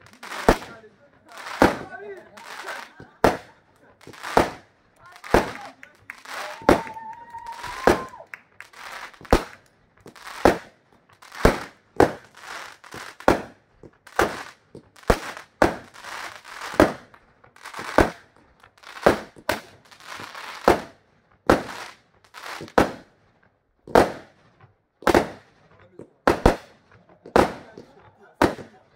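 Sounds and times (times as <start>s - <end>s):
fireworks bangs: 0.0s - 28.9s
rising firework whistle: 5.4s - 9.6s.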